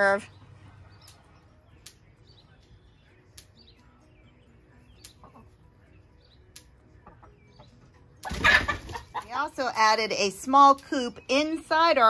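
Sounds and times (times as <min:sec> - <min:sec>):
birds chirping: 0:00.0 - 0:12.0
faint sharp clicks: 0:03.3 - 0:03.5, 0:06.5 - 0:06.7.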